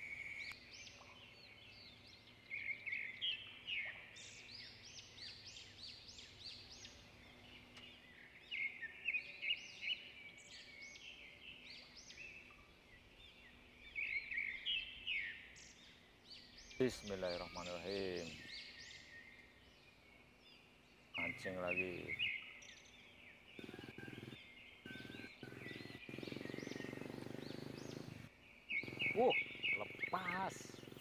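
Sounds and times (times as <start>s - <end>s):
birds chirping: 0.0s - 31.0s.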